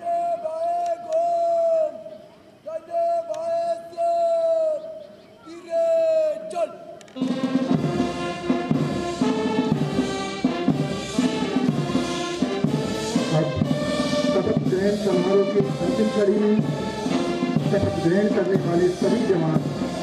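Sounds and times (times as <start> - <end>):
brass band playing a march: 7.2 - 20.0
drum beat: 7.2 - 20.0.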